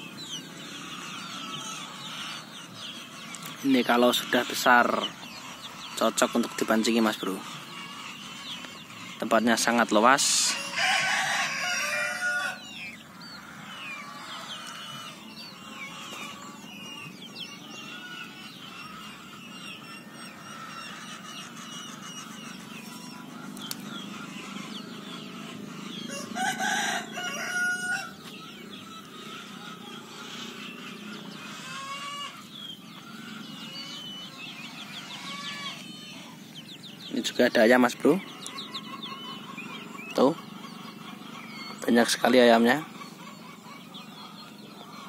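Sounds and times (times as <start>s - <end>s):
chickens clucking and cheeping: 0.0s - 45.0s
rooster crowing: 10.4s - 15.2s, 25.9s - 30.1s.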